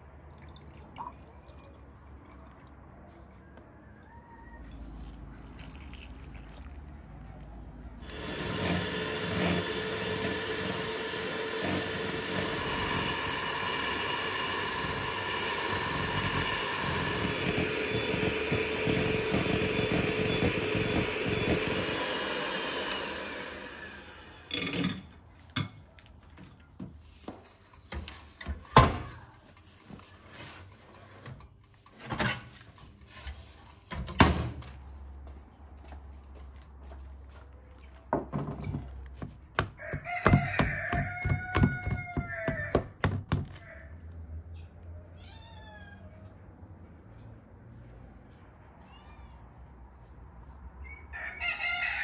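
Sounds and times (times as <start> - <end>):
electric hand mixer whisking: 8.0 - 24.5.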